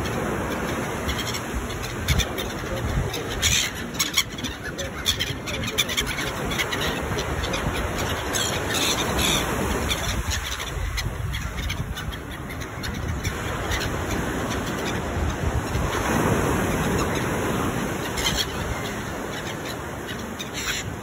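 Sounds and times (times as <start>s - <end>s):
gulls calling: 0.0s - 21.0s
wind rumbling on microphone: 4.7s - 19.1s.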